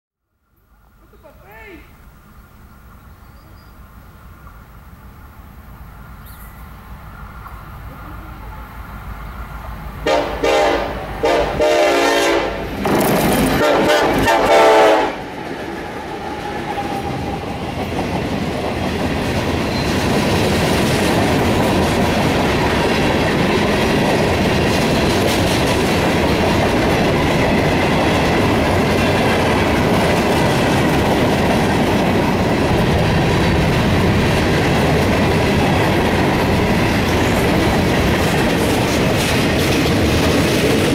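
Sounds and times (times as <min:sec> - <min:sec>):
diesel locomotives passing: 0:00.4 - 0:40.9
train air horn blasts: 0:10.0 - 0:12.8, 0:13.6 - 0:15.3
freight cars rolling: 0:12.6 - 0:40.9
wheels clacking over rail joints: 0:12.7 - 0:14.4, 0:15.3 - 0:40.9.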